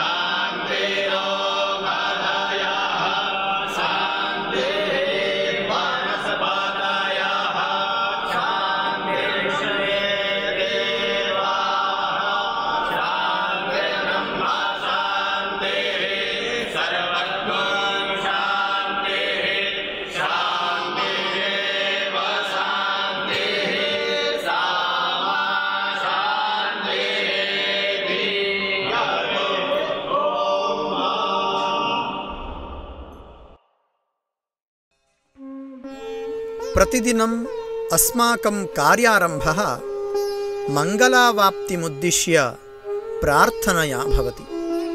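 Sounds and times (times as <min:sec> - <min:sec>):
group chanting: 0:00.0 - 0:33.6.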